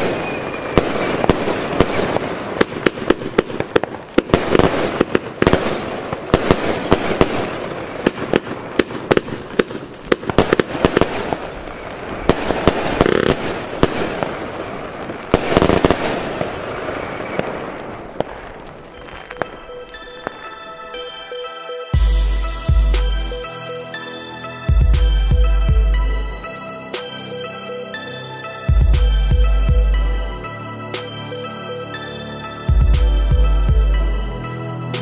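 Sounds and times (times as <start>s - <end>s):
bursting firework shells: 0.0s - 20.6s
firework launch reports: 0.0s - 20.7s.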